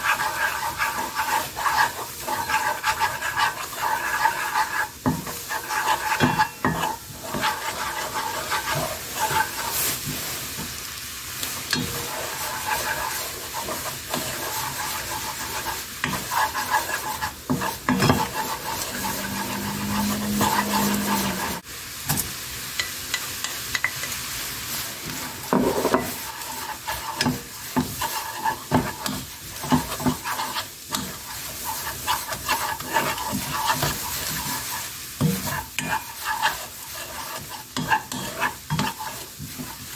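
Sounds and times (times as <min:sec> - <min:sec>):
spatula scraping pan: 0:00.0 - 0:10.8, 0:11.4 - 0:21.6, 0:23.4 - 0:39.9
sauce bubbling and sizzling in pan: 0:00.0 - 0:39.9.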